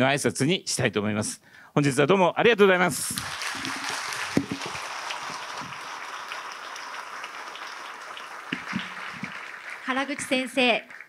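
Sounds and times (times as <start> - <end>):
audience applause: 3.2 - 11.0.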